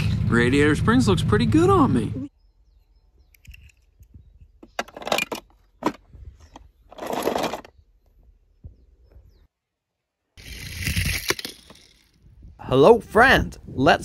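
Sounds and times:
metal toy cars clattering in plastic tub: 6.9s - 7.7s.

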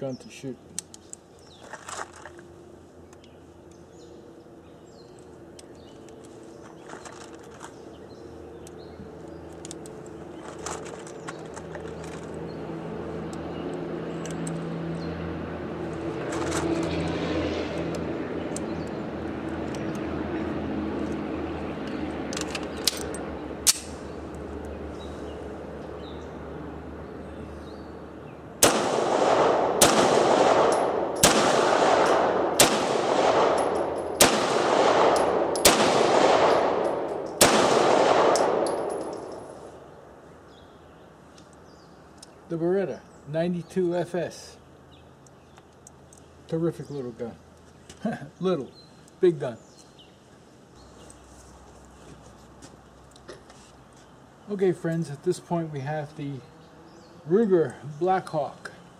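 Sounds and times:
pistol handling clicks: 0.7s - 1.5s, 9.5s - 12.2s, 21.8s - 24.0s, 28.6s - 39.4s
pistol shots echoing: 28.6s - 39.4s.

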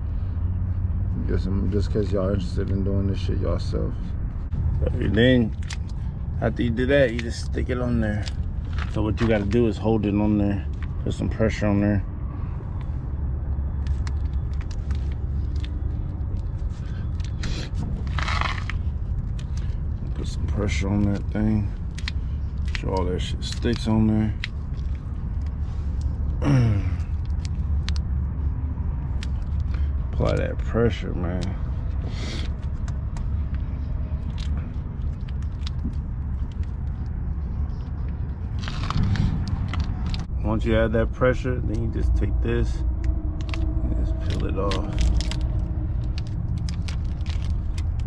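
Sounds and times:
steady low rumble: 0.0s - 48.0s
hand rubbing tire: 13.7s - 19.8s, 29.6s - 40.3s
plastic film clicks and crackles: 13.7s - 26.1s, 26.9s - 28.1s, 32.5s - 37.2s, 38.5s - 40.3s, 43.0s - 48.0s
transfer tape crackling: 43.0s - 48.0s.

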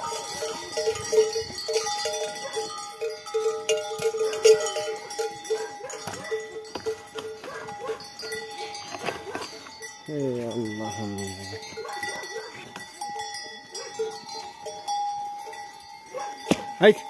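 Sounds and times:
cowbells clanking: 0.0s - 17.0s.

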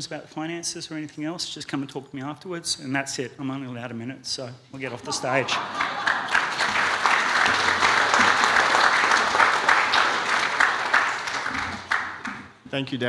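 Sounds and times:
audience applauding: 5.0s - 12.6s.

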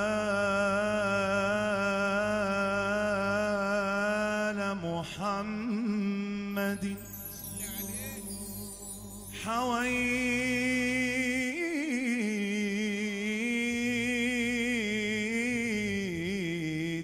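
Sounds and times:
man singing ornamented notes: 0.0s - 17.0s.

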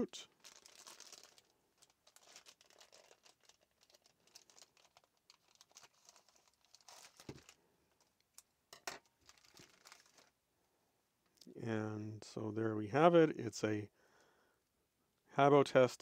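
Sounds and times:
plastic bag rustling: 0.3s - 8.2s, 9.1s - 10.4s.

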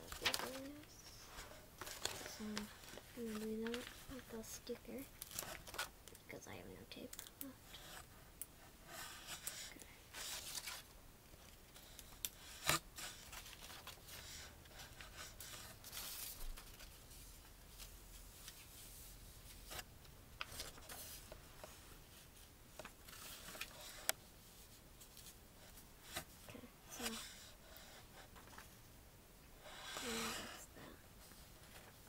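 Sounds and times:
paper rustling and crinkling: 0.0s - 5.9s, 10.1s - 12.0s, 12.6s - 25.4s, 28.4s - 28.8s, 31.3s - 32.0s.

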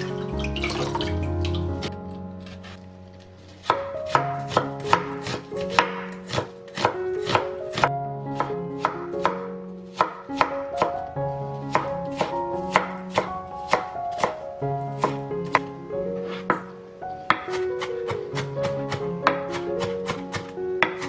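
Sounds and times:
knife chopping on wooden board: 3.6s - 9.4s, 10.0s - 11.0s, 11.7s - 14.4s, 17.3s - 21.0s.

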